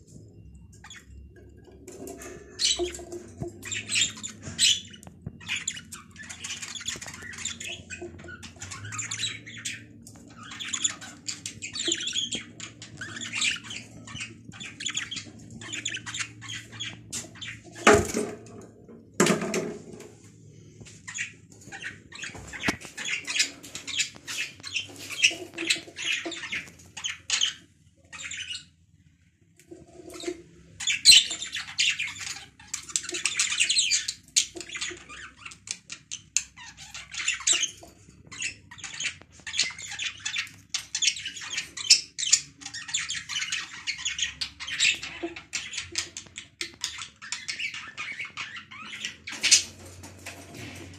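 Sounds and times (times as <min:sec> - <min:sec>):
budgerigars chattering and squawking: 0:00.8 - 0:18.6, 0:21.0 - 0:28.7, 0:29.7 - 0:50.9.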